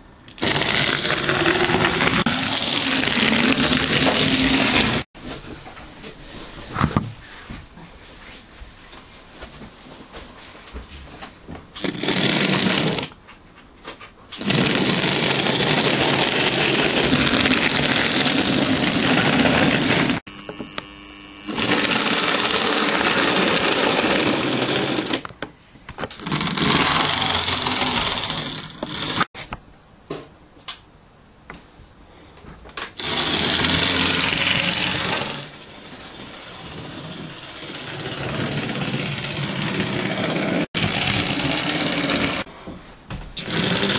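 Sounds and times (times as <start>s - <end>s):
small electric motor whirring: 14.4s - 25.2s, 26.2s - 29.3s, 33.0s - 42.5s, 43.4s - 43.9s.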